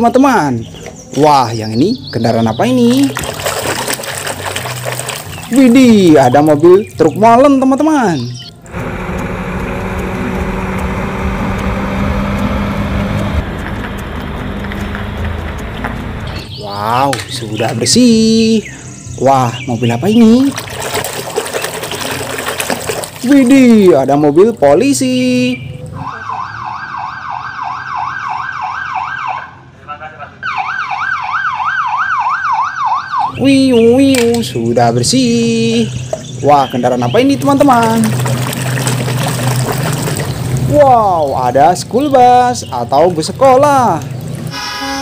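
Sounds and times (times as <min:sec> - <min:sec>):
diesel truck engine rumbling: 0:08.2 - 0:18.0, 0:33.3 - 0:45.0
police siren yelping: 0:25.9 - 0:29.6, 0:30.4 - 0:33.4.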